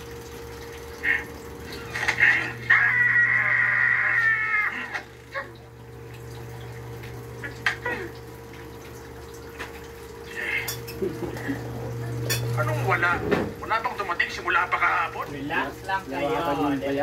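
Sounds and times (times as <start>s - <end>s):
high whining cry: 1.0s - 5.7s.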